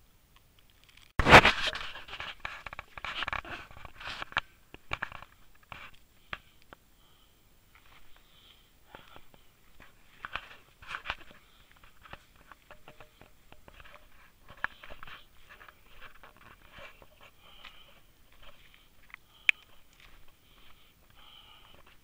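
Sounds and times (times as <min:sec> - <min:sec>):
grass rustling: 0:00.7 - 0:06.8, 0:07.7 - 0:22.0
footsteps on stony path: 0:08.9 - 0:22.0.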